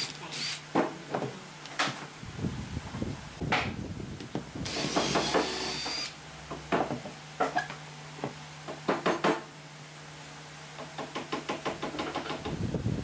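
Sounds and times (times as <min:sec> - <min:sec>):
power tool burst: 0:04.7 - 0:06.1.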